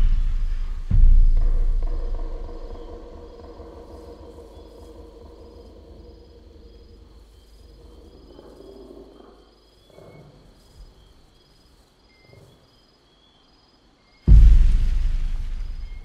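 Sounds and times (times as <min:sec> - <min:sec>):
low rumble: 0:00.0 - 0:08.1, 0:14.3 - 0:16.0
insect chirps: 0:00.0 - 0:16.0.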